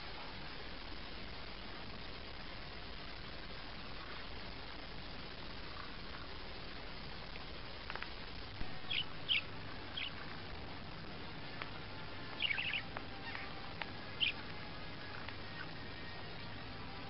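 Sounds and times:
faint steady hiss: 0.0s - 17.0s
budgerigar chirping: 8.8s - 10.2s, 12.3s - 14.5s, 15.5s - 15.8s.

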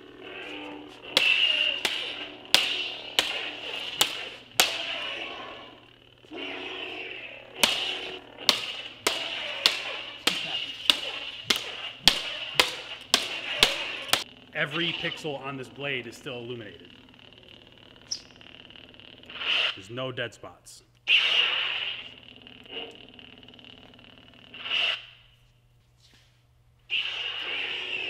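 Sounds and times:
plastic blades clashing: 1.1s - 5.0s, 7.6s - 14.3s.

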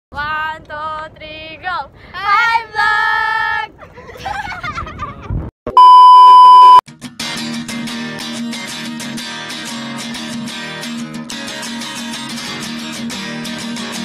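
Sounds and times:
girls talking and laughing: 3.7s - 5.4s
steady test-tone beep: 5.7s - 6.8s.

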